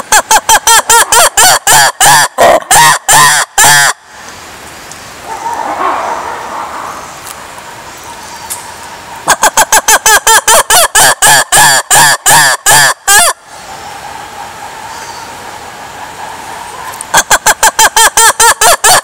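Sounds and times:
lemur barking call: 5.2 - 7.3, 14.4 - 19.0.

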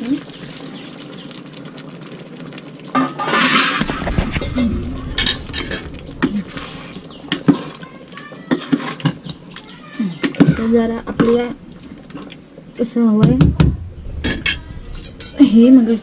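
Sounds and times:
rush of noise: 3.8 - 7.8, 13.4 - 16.0.

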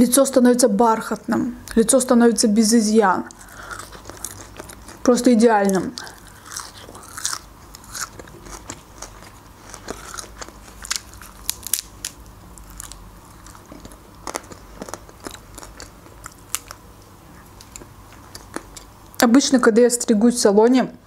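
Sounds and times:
crunchy flatbread chewing: 3.3 - 19.1.

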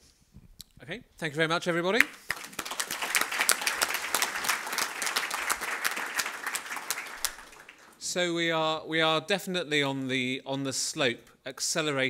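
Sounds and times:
crowd applauding: 2.0 - 8.0.

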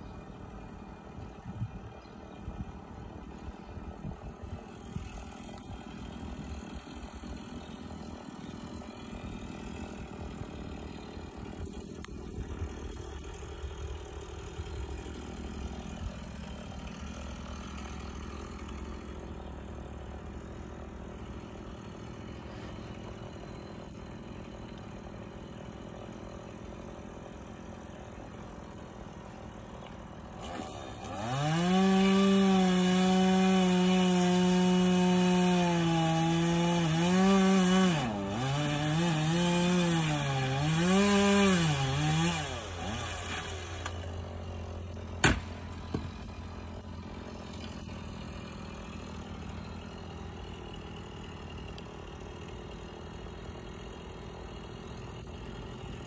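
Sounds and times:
engine idling: 0.0 - 31.5, 43.5 - 56.0
chainsaw starting and revving: 2.8 - 56.0.

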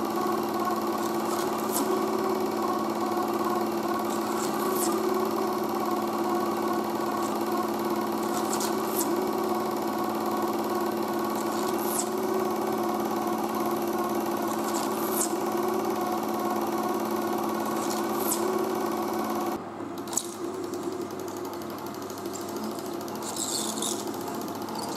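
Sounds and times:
film projector hum and whir: 0.0 - 24.9
short high squeak: 23.2 - 24.2.

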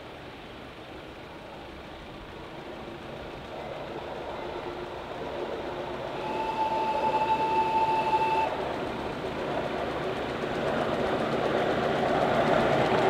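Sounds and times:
small engine running on track: 1.8 - 13.0
steam locomotive whistle: 6.1 - 8.7.

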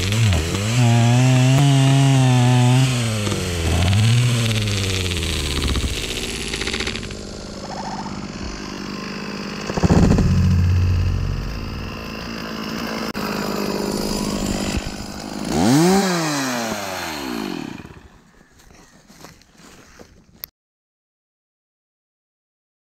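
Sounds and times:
chainsaw running: 0.0 - 18.4
loud heavy thud: 9.6 - 12.3.

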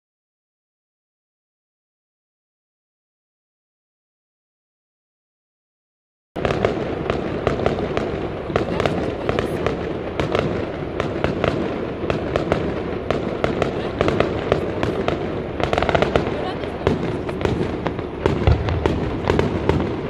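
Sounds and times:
fireworks cracking and popping: 6.4 - 20.0.

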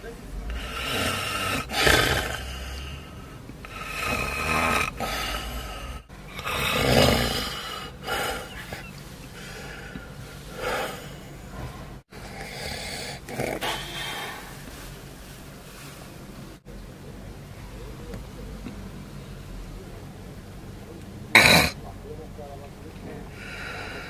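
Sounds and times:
man snoring: 0.4 - 11.4, 12.2 - 14.4.

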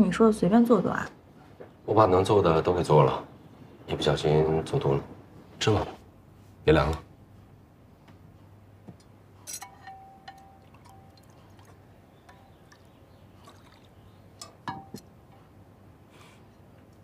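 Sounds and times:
tableware clinking on ceramic dishes: 9.4 - 11.4, 14.4 - 15.1.

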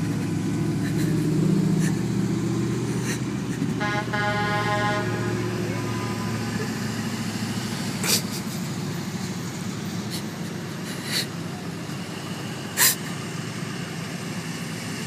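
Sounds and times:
trucks passing: 0.0 - 15.0.

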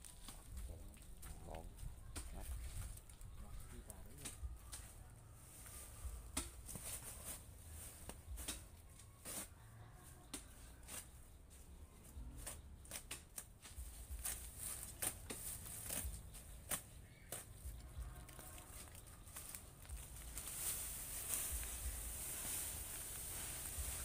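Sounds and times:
plastic sack crinkling: 17.7 - 24.0.

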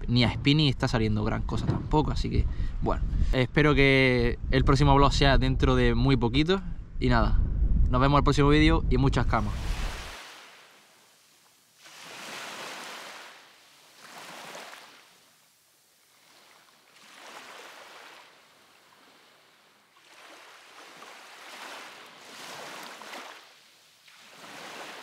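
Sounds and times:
small waves breaking on beach: 9.4 - 25.0.

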